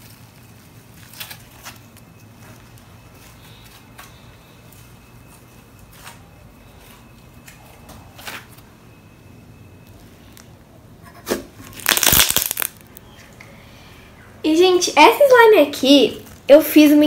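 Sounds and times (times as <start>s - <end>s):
low steady hum: 0.0s - 17.0s
slime clicks and pops: 11.8s - 12.8s.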